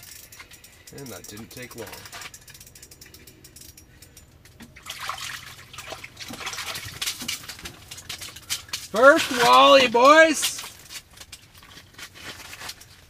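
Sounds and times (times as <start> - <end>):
fishing reel clicking: 0.0 - 4.3
water splashing and dripping: 4.6 - 11.3.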